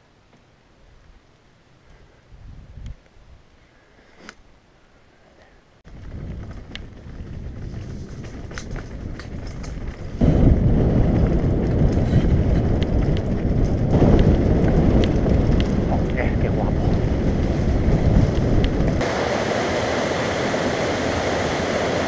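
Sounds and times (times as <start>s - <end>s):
wind rumbling on microphone: 1.9s - 3.6s, 5.9s - 22.0s
bike clicks and rattles: 5.9s - 19.0s
tyres crunching over stones: 5.9s - 19.0s.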